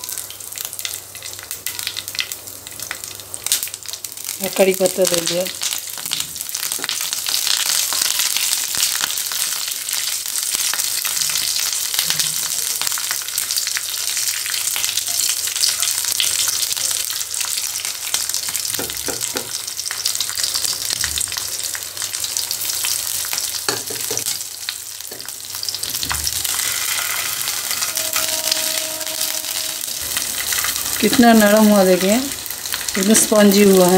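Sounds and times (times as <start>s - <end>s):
chillies sizzling in hot oil: 0.0s - 33.9s
spatula scraping frying pan: 25.6s - 31.0s.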